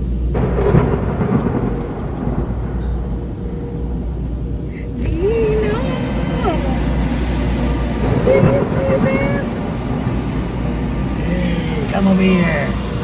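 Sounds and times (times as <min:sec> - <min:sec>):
car interior rumble: 0:00.0 - 0:13.0
wavering pitched tone: 0:04.9 - 0:13.0.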